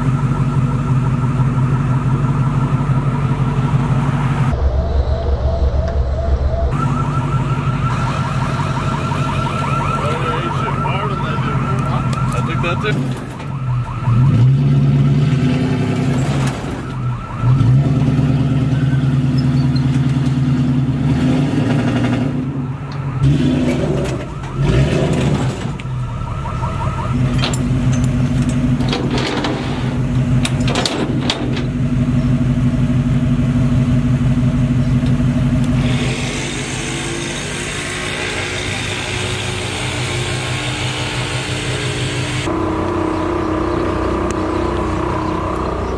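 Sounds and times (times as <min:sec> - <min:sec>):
vehicle engine humming: 0:00.0 - 0:45.9
sharp clanks and clicks: 0:27.3 - 0:31.8.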